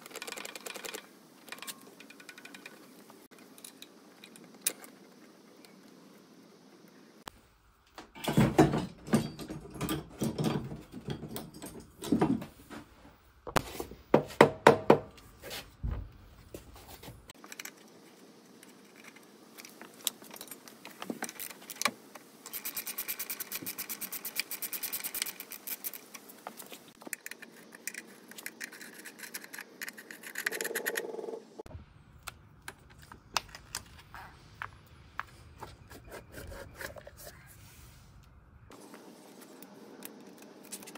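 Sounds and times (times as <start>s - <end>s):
metal tools clinking and scraping: 8.2s - 12.5s.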